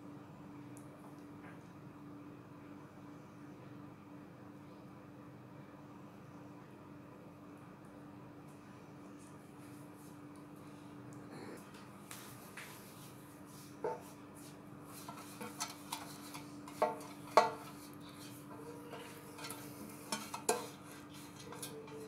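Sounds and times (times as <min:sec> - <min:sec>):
steady low hum: 0:00.0 - 0:22.0
light scraping: 0:13.8 - 0:22.0.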